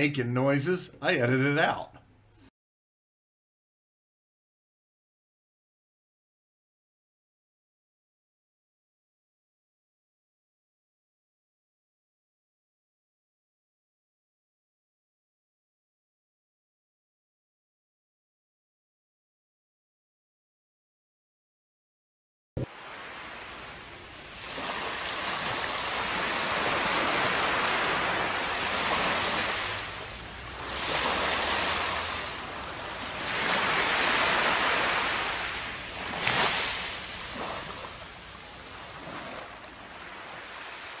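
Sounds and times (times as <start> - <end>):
surf washing up on beach: 22.6 - 41.0.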